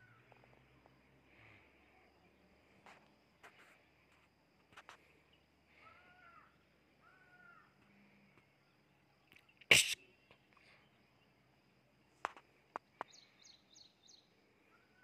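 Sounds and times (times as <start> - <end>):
faint bird calls: 0.0 - 3.9, 4.7 - 8.6, 12.2 - 15.0.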